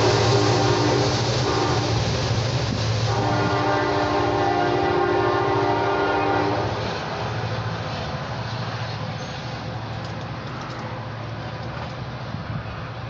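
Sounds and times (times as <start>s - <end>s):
locomotive horn chord: 0.0s - 2.0s, 3.1s - 6.7s
low rumble of train: 0.0s - 13.0s.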